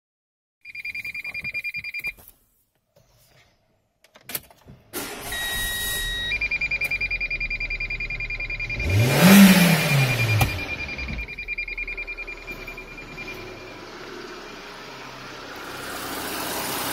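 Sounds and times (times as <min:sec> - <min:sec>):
dashboard warning chime beeping: 0:00.7 - 0:02.3, 0:05.2 - 0:15.2
car engine starting and idling: 0:04.8 - 0:16.9
engine revving: 0:05.1 - 0:16.9.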